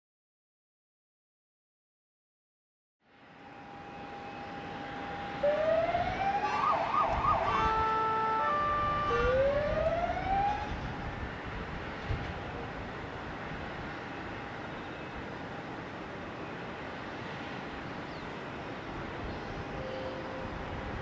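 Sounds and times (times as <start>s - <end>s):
emergency siren wailing: 3.3s - 11.2s
jet engines whining: 3.3s - 11.2s.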